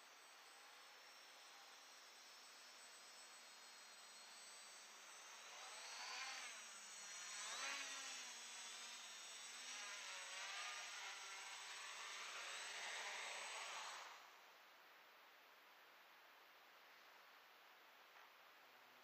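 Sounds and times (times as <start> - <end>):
drone motors whining: 0.2 - 14.4.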